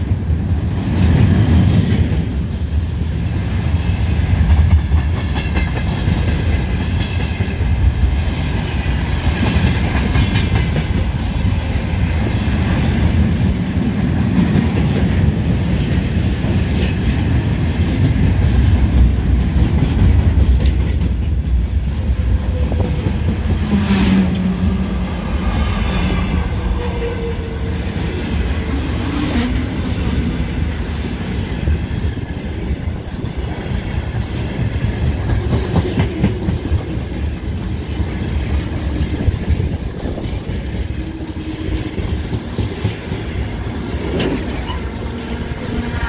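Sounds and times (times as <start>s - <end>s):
freight train wheels rumbling: 0.0s - 46.0s.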